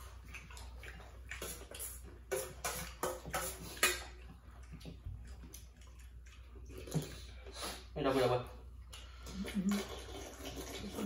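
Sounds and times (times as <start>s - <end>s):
soup slurping: 9.2s - 11.0s.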